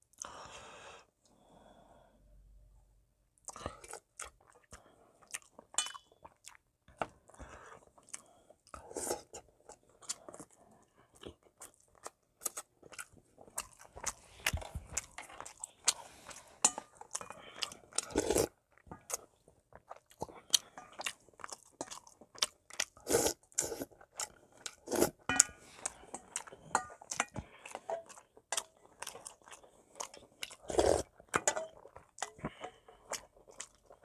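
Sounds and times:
chewing and mouth smacks: 9.6s - 23.0s, 25.8s - 34.0s.

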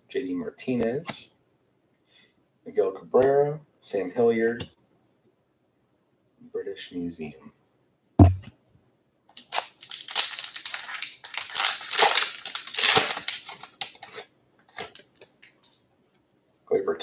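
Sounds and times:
short thump: 8.2s - 8.5s
foil pack tearing and crinkling: 9.4s - 15.0s.

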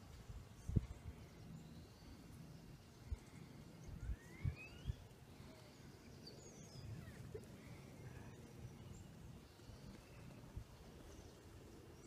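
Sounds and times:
faint bird call: 3.2s - 8.9s.

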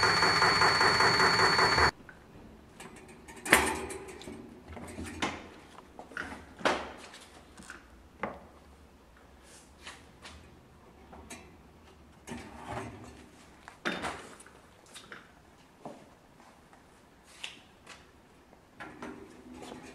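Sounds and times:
mechanical noise with high whine: 0.0s - 2.0s.

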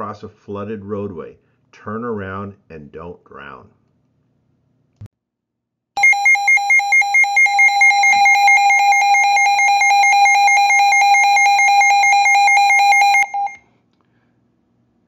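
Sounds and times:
electronic alert tone beeping: 6.0s - 13.6s.

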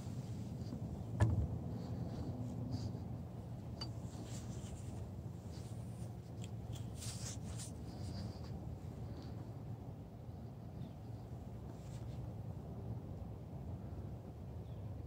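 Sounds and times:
low steady rumble: 0.0s - 15.0s
scratchy rustling: 4.0s - 9.2s.

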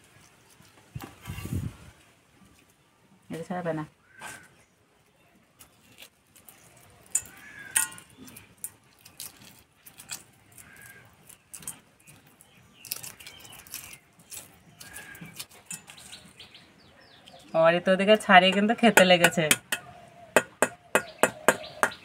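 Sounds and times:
eggshells cracking: 5.6s - 16.4s.

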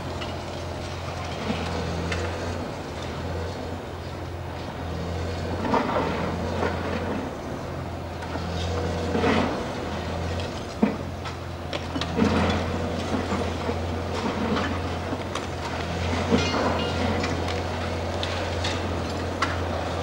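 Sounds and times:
diesel engine running: 0.0s - 20.0s
concrete crunching and clattering: 8.4s - 20.0s.

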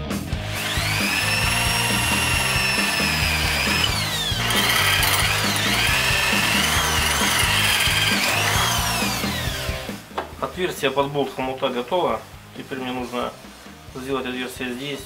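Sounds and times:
electric drill boring through steel: 0.4s - 9.9s.

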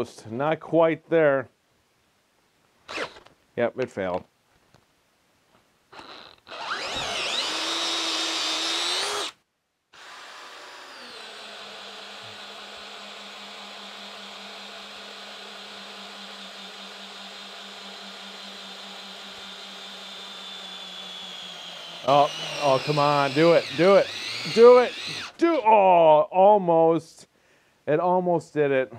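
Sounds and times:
cordless drill boring into wood: 2.9s - 3.3s, 5.9s - 25.8s.

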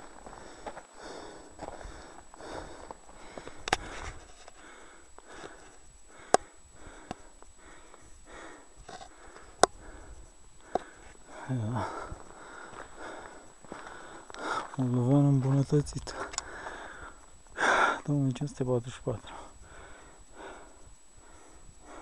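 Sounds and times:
person breathing hard: 0.0s - 14.8s, 16.1s - 18.1s, 19.2s - 22.0s
sharp clicks: 3.6s - 3.9s.

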